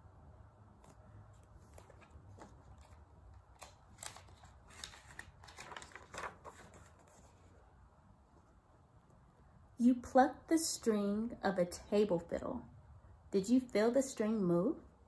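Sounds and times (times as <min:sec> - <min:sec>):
paper page rustling: 0:00.8 - 0:07.6.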